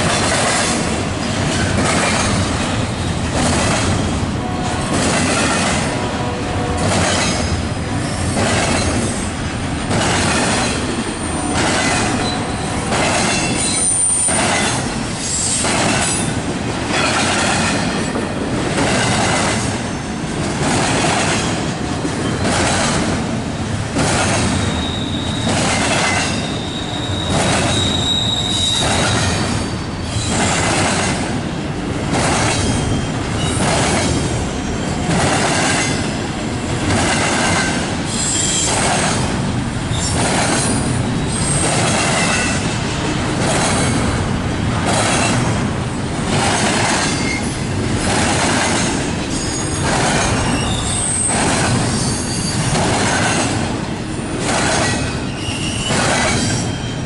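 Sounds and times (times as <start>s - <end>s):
train wheels rumbling on rail: 0.0s - 57.0s
high wheel squeal: 11.2s - 15.7s, 24.7s - 30.4s, 38.1s - 38.8s, 39.9s - 42.5s, 49.3s - 53.4s, 54.8s - 57.0s.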